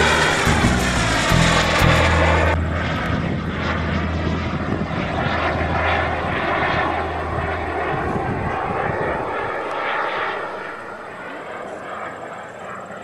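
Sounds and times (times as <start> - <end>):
model jet turbine engine: 0.0 - 13.0.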